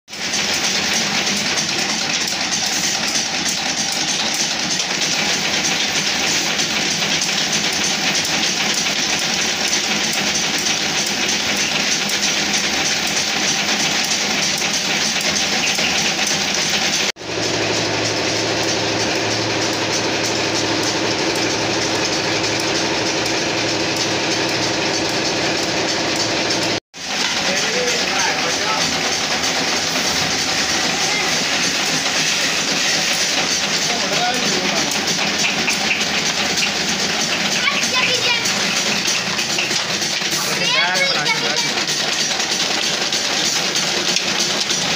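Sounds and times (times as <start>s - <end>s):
brush-tufting machines clattering: 0.1s - 44.9s.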